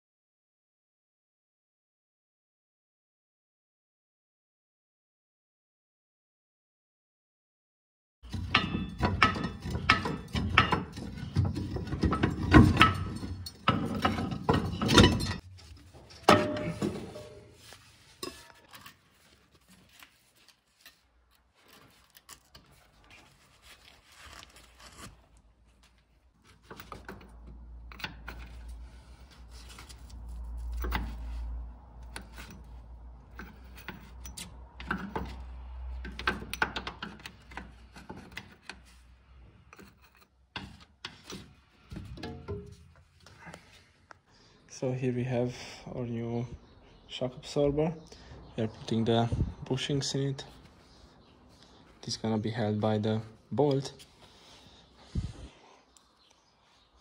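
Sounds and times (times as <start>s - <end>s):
metal tools clinking and knocking: 8.2s - 17.6s, 18.2s - 19.3s, 26.4s - 38.9s, 39.6s - 43.1s.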